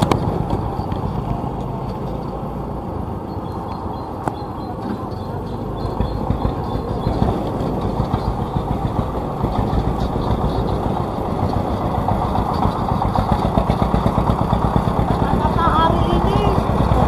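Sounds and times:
diesel engine chugging: 0:00.0 - 0:17.0.

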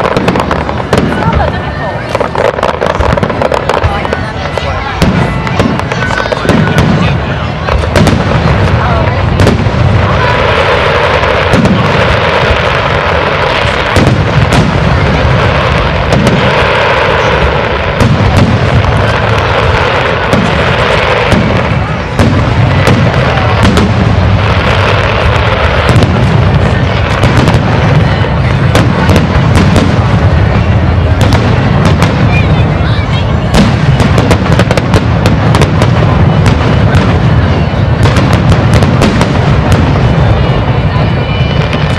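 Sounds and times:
fireworks booming: 0:00.0 - 0:41.9
fireworks crackling: 0:00.0 - 0:41.9.

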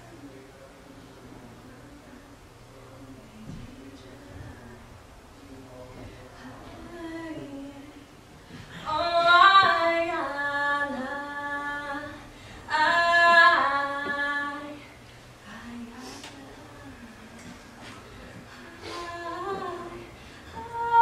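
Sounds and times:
woman singing unaccompanied: 0:06.4 - 0:17.6, 0:18.5 - 0:21.0.

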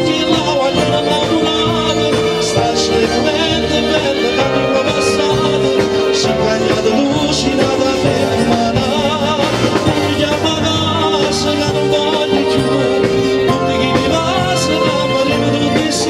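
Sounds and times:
live band playing: 0:00.0 - 0:16.0
man singing into microphone: 0:00.0 - 0:16.0.

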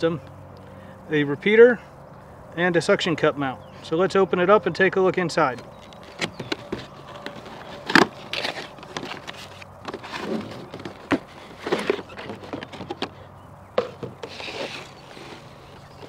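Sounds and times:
cardboard rustling and scraping: 0:05.5 - 0:13.2, 0:13.8 - 0:16.0.

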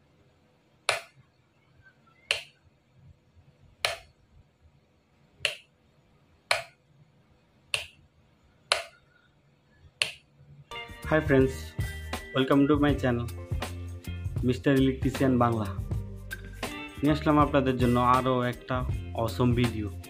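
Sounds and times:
wall switch clicking: 0:00.9 - 0:01.2, 0:02.3 - 0:02.6, 0:03.8 - 0:04.1, 0:05.4 - 0:05.7, 0:06.5 - 0:06.8, 0:07.7 - 0:08.0, 0:08.7 - 0:09.0, 0:10.0 - 0:10.3.

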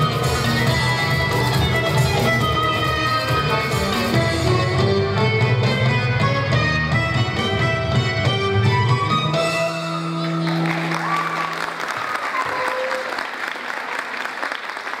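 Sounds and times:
belly-dance music: 0:00.0 - 0:12.6
audience applause and cheering: 0:09.9 - 0:15.0.

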